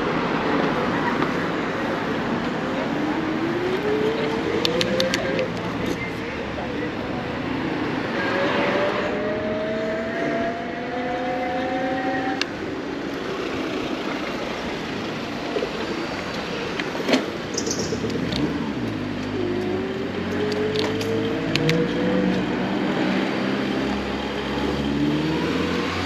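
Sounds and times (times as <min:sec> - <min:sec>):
wind and road noise: 0:00.0 - 0:26.0
sharp clicks: 0:04.6 - 0:05.6, 0:20.3 - 0:22.4.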